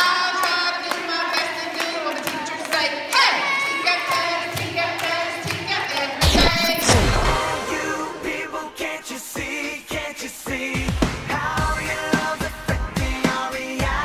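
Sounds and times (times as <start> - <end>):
hand clapping: 0.0 - 6.2
children singing: 0.0 - 9.9
pop music with heavy beat: 4.3 - 14.0.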